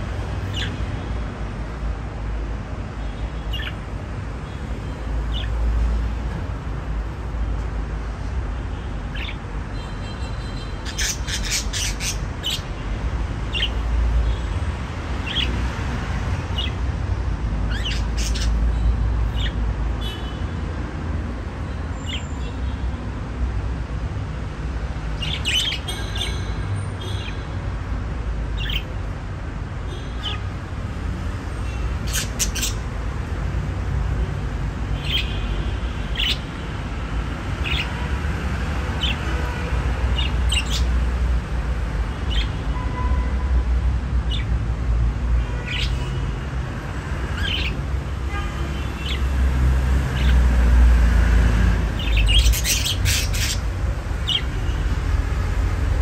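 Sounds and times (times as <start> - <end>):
budgerigars chirping: 0.4 - 0.8, 10.8 - 12.7, 15.2 - 15.6, 17.7 - 18.6, 25.2 - 25.9, 32.0 - 32.8, 36.2 - 36.4, 37.6 - 38.0, 40.1 - 41.0, 47.4 - 47.8, 52.0 - 54.6.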